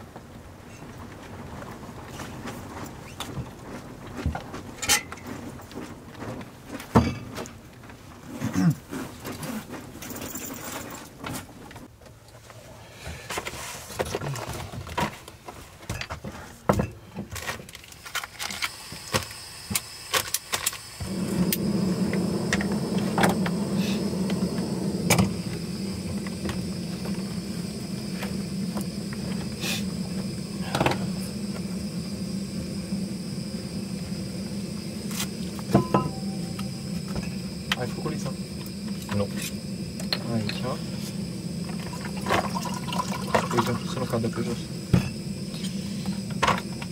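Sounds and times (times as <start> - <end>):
gas stove burner hissing: 18.0 - 46.9.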